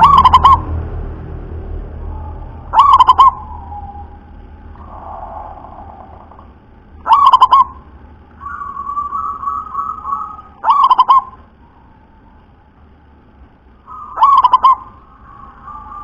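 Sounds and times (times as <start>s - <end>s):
dove cooing: 0.0s - 0.7s, 2.2s - 11.5s, 13.9s - 16.0s.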